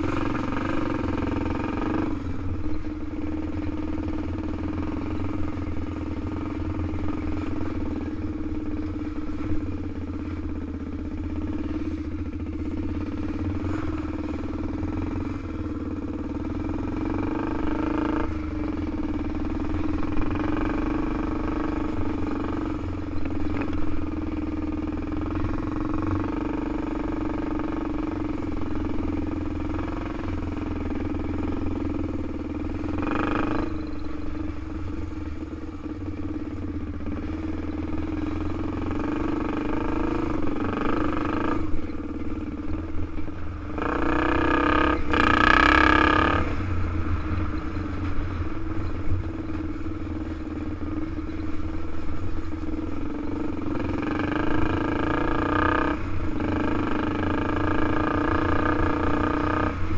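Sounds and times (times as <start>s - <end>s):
quad bike engine running: 0.0s - 59.9s.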